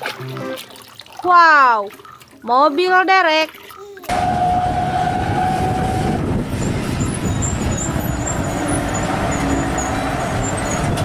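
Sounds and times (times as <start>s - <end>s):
tow truck engine and road noise: 4.1s - 11.0s.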